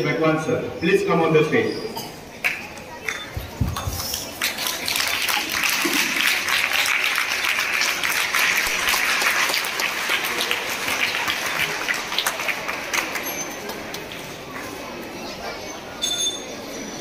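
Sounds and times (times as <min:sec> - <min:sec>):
audience applauding: 0:03.9 - 0:14.2.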